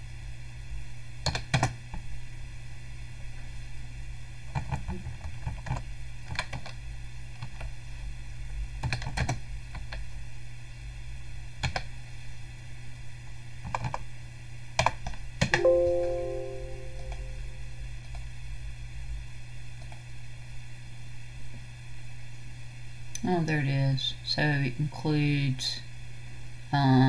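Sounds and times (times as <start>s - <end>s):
computer alert chime: 15.6s - 17.6s.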